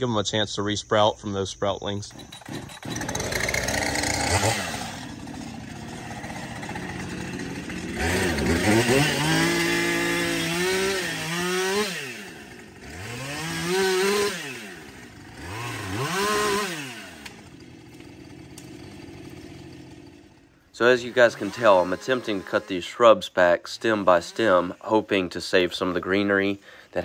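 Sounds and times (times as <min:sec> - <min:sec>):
small chainsaw idling and revving: 0:02.1 - 0:27.0.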